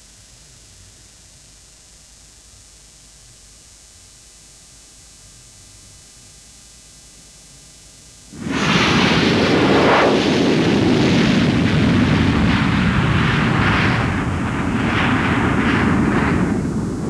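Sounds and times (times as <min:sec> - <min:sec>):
jet engine roaring in afterburner: 0:08.3 - 0:17.0.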